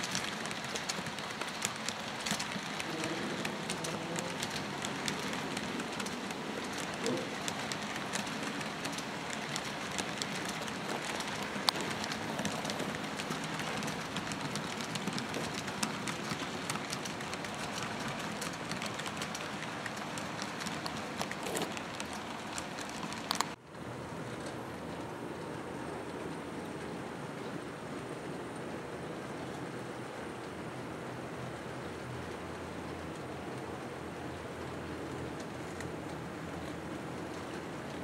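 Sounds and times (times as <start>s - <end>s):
clicks over rail joints: 0.0s - 23.6s
model train wheels rattling on rails: 0.0s - 23.6s.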